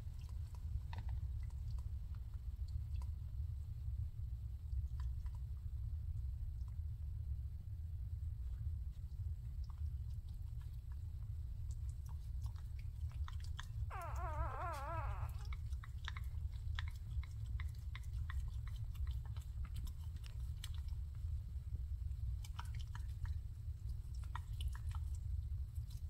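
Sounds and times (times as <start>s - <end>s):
puppies suckling: 11.6s - 21.2s
puppy squealing: 13.9s - 15.7s.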